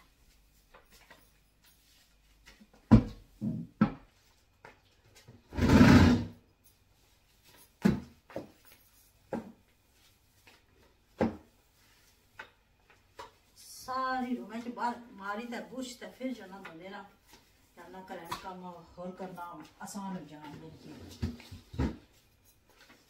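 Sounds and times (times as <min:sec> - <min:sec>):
broom scraping on tiled floor: 0:05.5 - 0:06.4.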